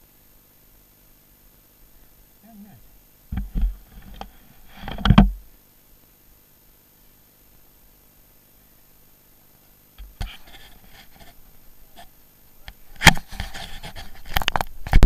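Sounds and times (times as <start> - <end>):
handling noise on microphone: 3.3 - 5.5, 12.7 - 15.0
loud bumps on microphone: 3.3 - 5.5.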